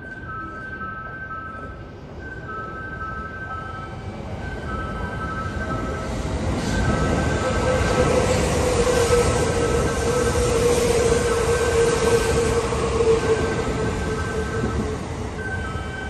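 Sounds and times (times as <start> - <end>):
train wheels rushing on rail: 3.5 - 16.0.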